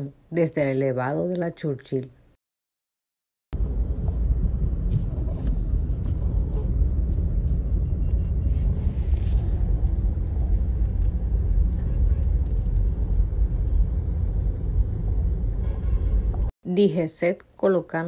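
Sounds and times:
car rumble from inside cabin: 3.6s - 15.6s.

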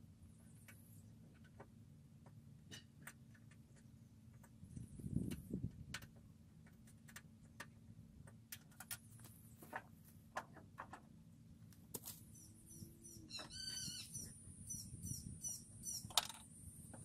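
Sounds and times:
bird chirping: 12.2s - 16.2s.

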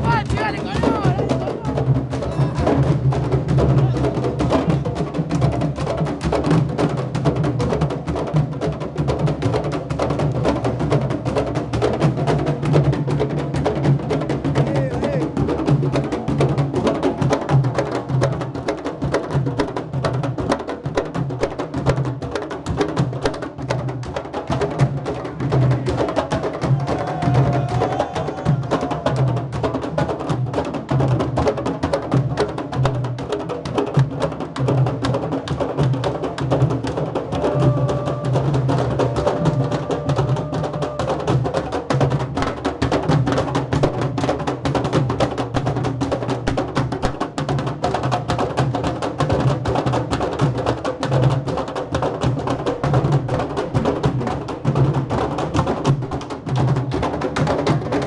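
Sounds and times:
drum band playing: 0.0s - 58.0s
sharp clicking drum strokes: 46.4s - 47.7s.

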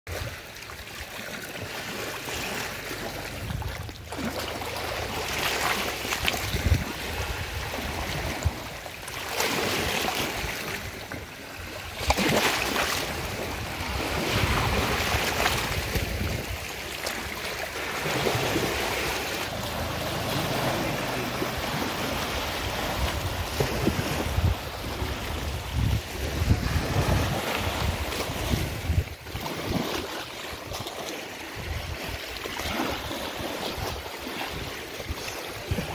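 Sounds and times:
floodwater lapping against riverbank: 0.1s - 35.9s
wind buffeting microphone: 3.1s - 4.1s, 5.9s - 11.0s, 13.0s - 17.3s, 17.9s - 30.8s, 31.5s - 33.0s, 33.6s - 35.9s.

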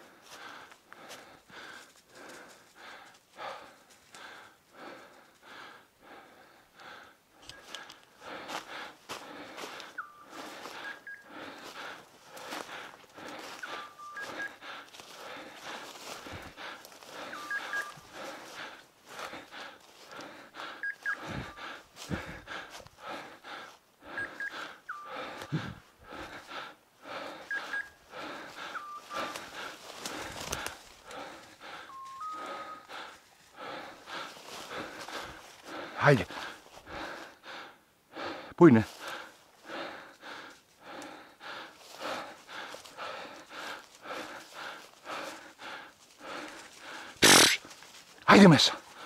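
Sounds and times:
hard breathing: 0.0s - 49.0s
electronic beep pattern: 17.3s - 18.0s.

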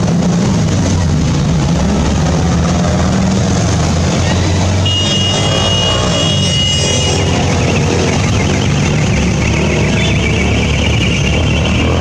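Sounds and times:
motorcycle engines rumbling: 0.0s - 12.0s
high steady tone: 4.8s - 7.4s.

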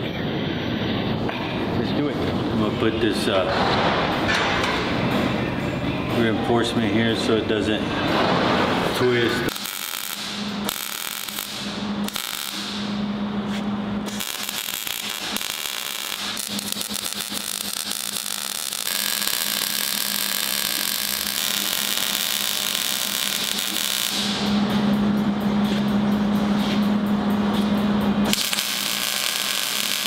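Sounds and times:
low steady hum: 0.0s - 30.0s
welder arc crackling and sizzling: 8.6s - 24.9s, 27.6s - 30.0s.

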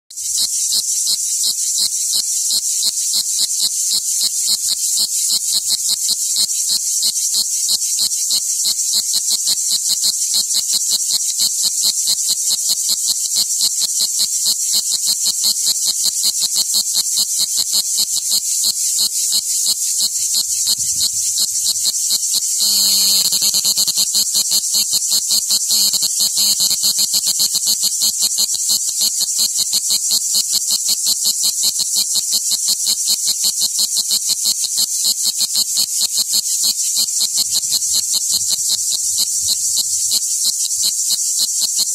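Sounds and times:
cicada buzzing pulses: 0.1s - 41.9s.

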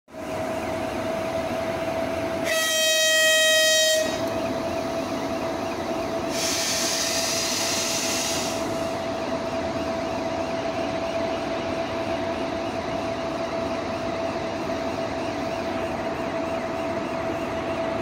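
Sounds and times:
locomotive horn: 2.4s - 4.3s
hiss: 6.3s - 8.8s.

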